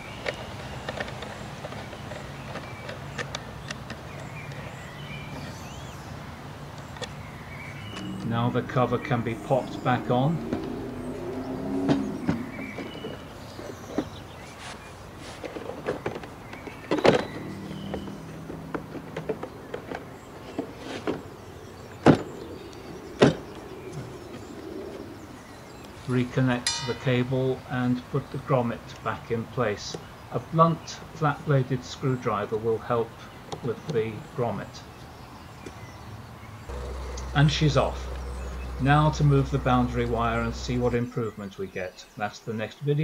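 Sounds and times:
birds chirping: 0:00.0 - 0:43.0
low hum: 0:07.3 - 0:13.4, 0:36.7 - 0:41.2.

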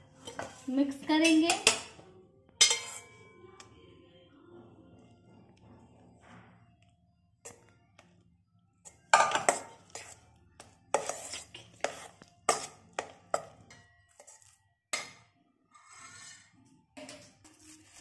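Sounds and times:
spoon scraping metal bowl: 0:00.1 - 0:01.9, 0:02.6 - 0:03.3, 0:08.8 - 0:18.0.

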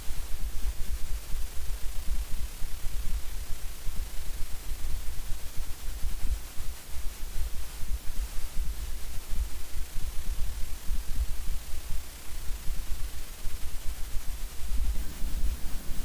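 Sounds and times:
steady hiss: 0:00.0 - 0:16.0.

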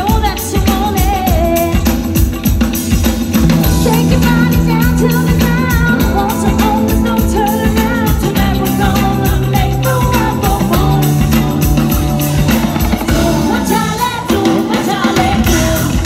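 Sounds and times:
drum kit beat: 0:00.0 - 0:16.0
bass and guitar: 0:01.3 - 0:16.0
person singing: 0:03.5 - 0:16.0.

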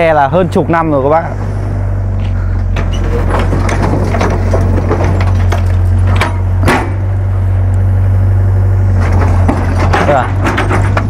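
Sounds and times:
excavator diesel engine running: 0:00.0 - 0:11.0
excavator bucket clanking: 0:02.2 - 0:07.1, 0:08.9 - 0:11.0.

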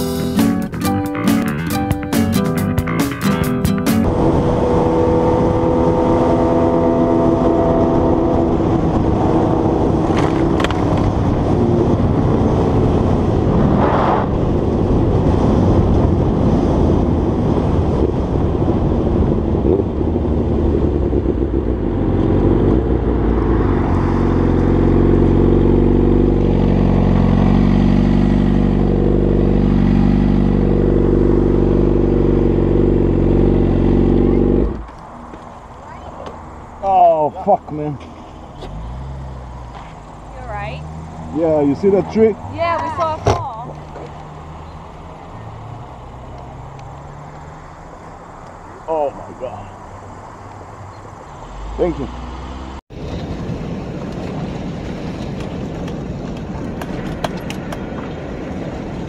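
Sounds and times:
motorcycle engine running: 0:24.0 - 0:34.9.

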